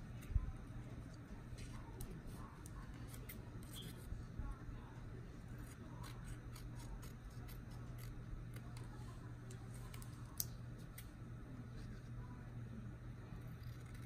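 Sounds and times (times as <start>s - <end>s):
low steady hum: 0.0s - 14.0s
scissors snipping paper: 5.5s - 11.1s.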